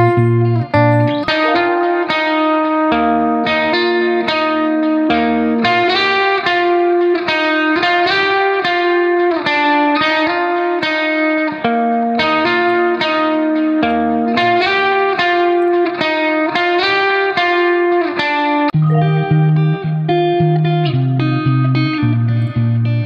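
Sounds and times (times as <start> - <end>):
plucked-string melody: 0.0 - 5.8, 18.8 - 23.0.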